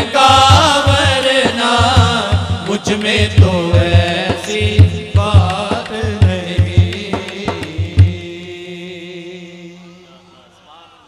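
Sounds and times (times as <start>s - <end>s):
man singing: 0.0s - 11.0s
frame drum beating: 0.4s - 8.3s.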